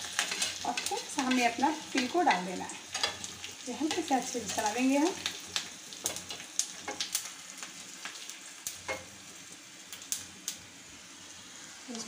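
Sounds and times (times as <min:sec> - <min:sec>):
hot oil sizzling in pan: 0:00.0 - 0:12.0.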